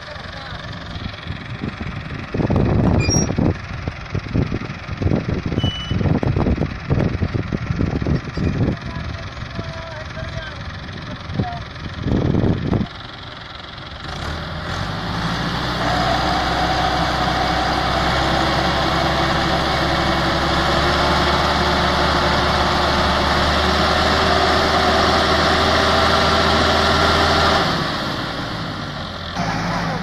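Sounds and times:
tractor diesel engine revving: 0:00.0 - 0:30.0.

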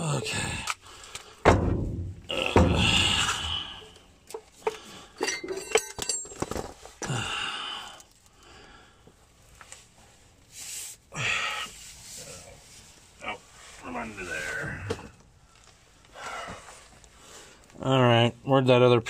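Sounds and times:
breathy exhale: 0:02.7 - 0:04.1, 0:07.1 - 0:09.1
metal hand tools clinking: 0:04.3 - 0:06.6.

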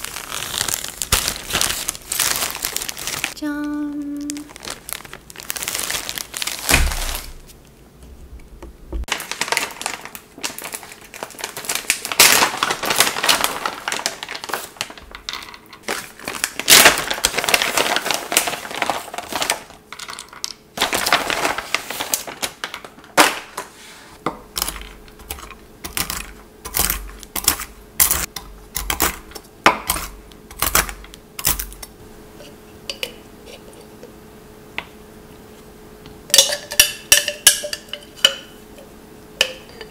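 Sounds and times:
packet rustling: 0:00.0 - 0:07.5, 0:09.1 - 0:20.2, 0:20.8 - 0:23.6
plastic bag crinkling: 0:00.0 - 0:07.5, 0:09.1 - 0:23.6.

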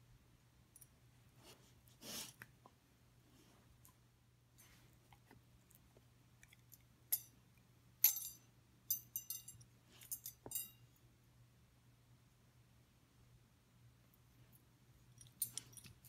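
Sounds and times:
metal prongs clinking: 0:08.0 - 0:10.8, 0:15.2 - 0:16.0.

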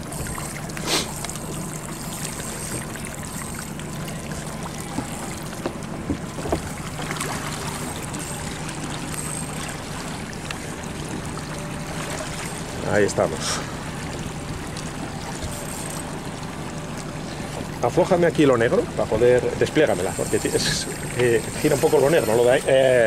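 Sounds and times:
boat engine running: 0:00.0 - 0:23.0
water washing along hull: 0:00.0 - 0:23.0.

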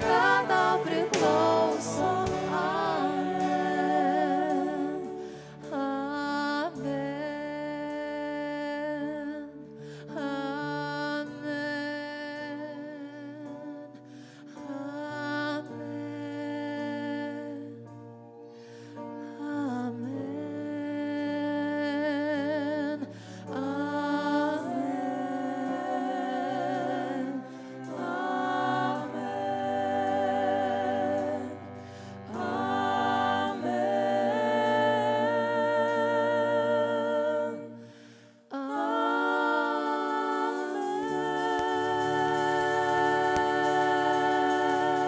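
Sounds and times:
low sustained accompaniment: 0:00.0 - 0:09.4, 0:19.4 - 0:45.0
person singing with vibrato: 0:00.0 - 0:17.8, 0:19.3 - 0:45.0.

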